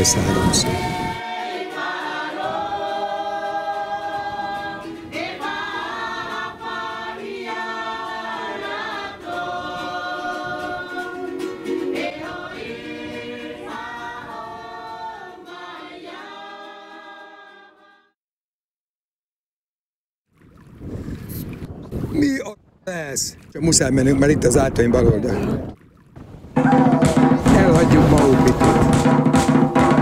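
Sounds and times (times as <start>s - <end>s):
choir singing held chords: 0.0s - 18.2s.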